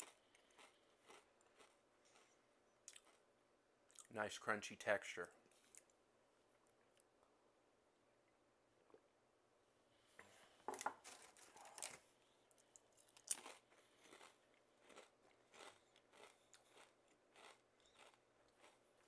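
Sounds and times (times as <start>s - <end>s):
potato chip crunching: 0.0s - 2.3s, 2.9s - 3.2s, 11.6s - 19.0s.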